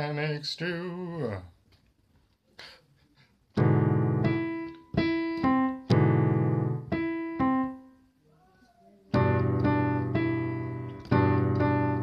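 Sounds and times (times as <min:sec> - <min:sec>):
slow sustained keyboard chords: 0:03.6 - 0:07.9.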